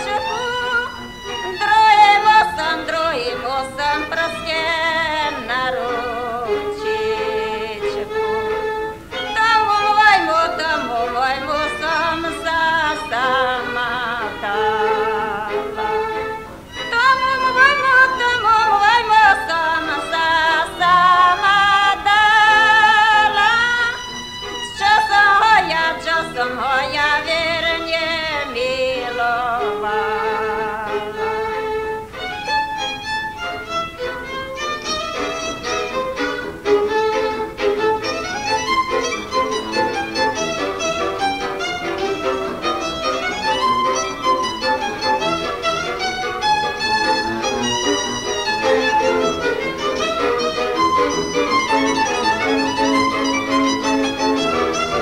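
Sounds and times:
woman singing folk song: 0:00.0 - 0:33.6.

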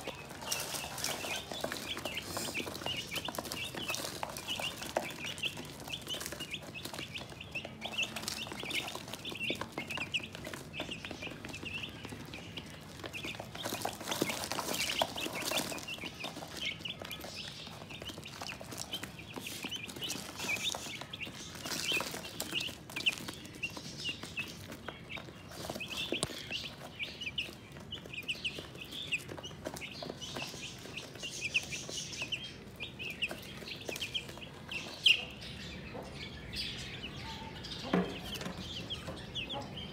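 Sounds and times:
beaks pecking on plastic tray: 0:00.0 - 0:39.9
chicks peeping: 0:00.0 - 0:39.9.

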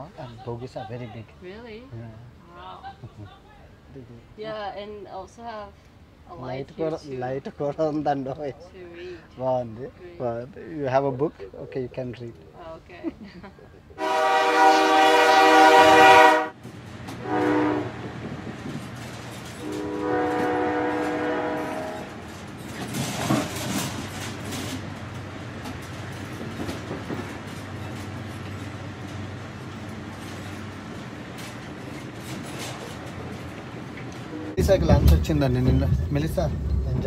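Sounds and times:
train horn blasts: 0:14.0 - 0:18.1, 0:19.6 - 0:22.4, 0:34.3 - 0:34.7
train running rumble: 0:14.0 - 0:37.0.

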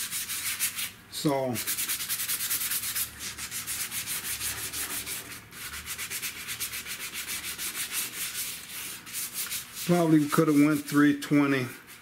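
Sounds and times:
sandpaper rubbing on plastic: 0:00.0 - 0:00.9, 0:01.6 - 0:12.0.

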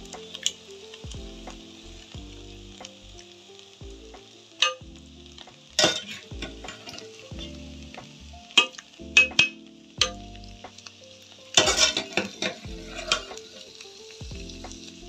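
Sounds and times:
faint sizzle: 0:00.0 - 0:15.0
metal spoon scraping a pot: 0:11.6 - 0:13.4.

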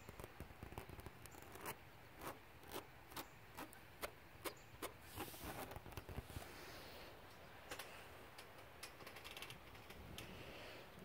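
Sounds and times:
fingers scratching woven fabric: 0:00.0 - 0:06.4.

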